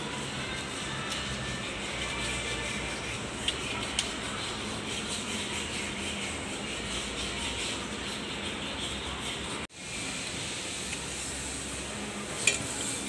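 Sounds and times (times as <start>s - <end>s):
sheet metal rubbing against steel: 0.0s - 9.7s.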